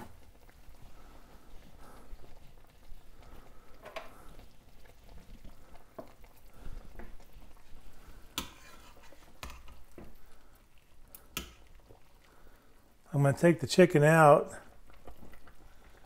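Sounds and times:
pot bubbling faintly: 0.0s - 16.0s
tongs clicking against pot: 11.1s - 11.6s.

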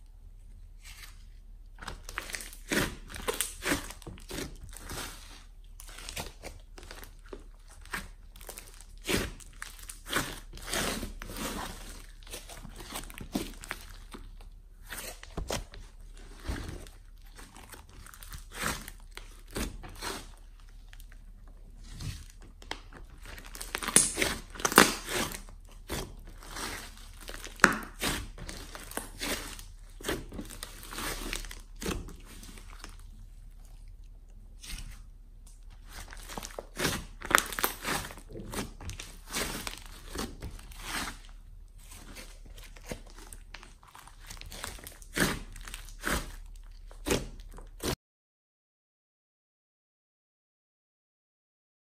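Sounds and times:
slime squelching: 0.6s - 48.0s
slime crackling pops: 23.6s - 25.2s.

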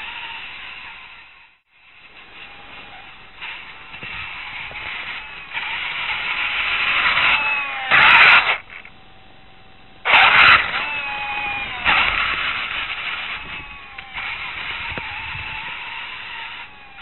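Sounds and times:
electric motors whining: 0.0s - 17.0s
harsh noise bursts: 2.0s - 8.9s.

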